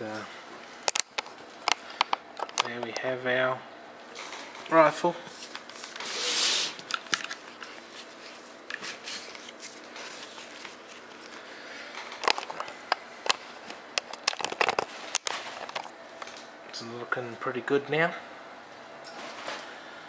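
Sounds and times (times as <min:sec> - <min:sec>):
rifle handling rustle and bump: 0:12.0 - 0:16.4.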